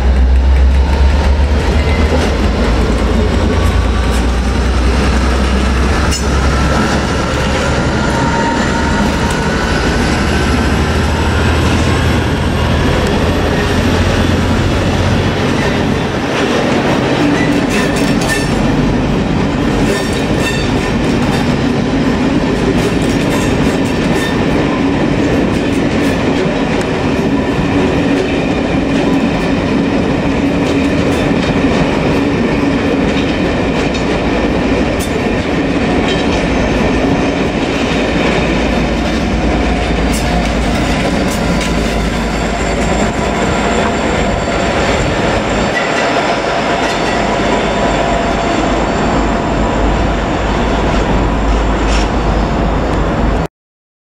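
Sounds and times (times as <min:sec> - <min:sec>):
train wheels clicking over rail joints: 0:00.0 - 0:48.0
diesel locomotive rumble: 0:00.0 - 0:53.5
train rolling noise: 0:00.0 - 0:53.5.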